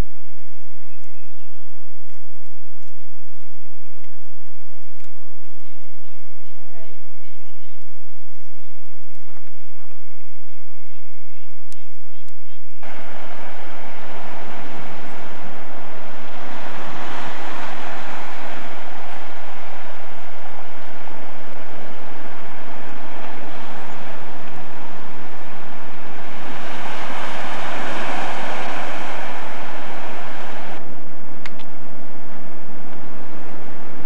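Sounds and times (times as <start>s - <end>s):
surf washing onto rocks: 12.8s - 34.0s
waves breaking: 12.8s - 34.0s.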